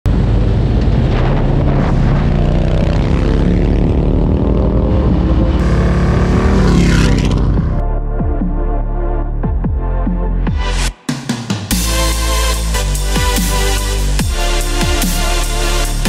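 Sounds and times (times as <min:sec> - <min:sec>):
motorcycle engines running: 0:00.1 - 0:07.8
motorcycle passing by: 0:00.1 - 0:07.8.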